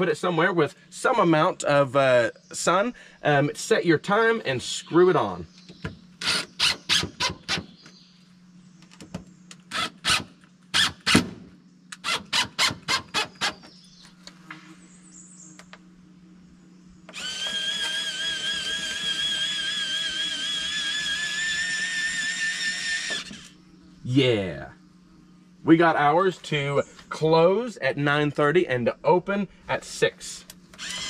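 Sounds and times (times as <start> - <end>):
electric motor whine: 4.6 - 27.5, 30.5 - 31.0
cordless drill driving screws: 6.2 - 7.6, 17.1 - 23.6, 30.7 - 31.0.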